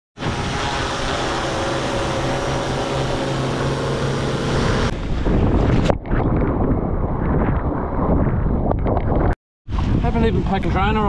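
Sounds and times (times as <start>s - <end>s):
drone propellers humming: 0.2s - 5.0s
rough low rushing noise: 0.2s - 10.3s.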